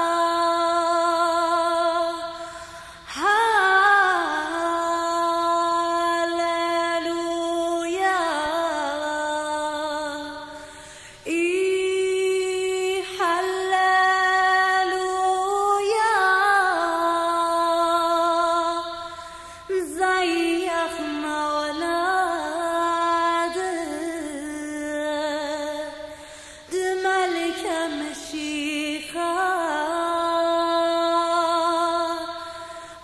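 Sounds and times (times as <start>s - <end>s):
woman singing a slow hymn: 0.0s - 33.0s.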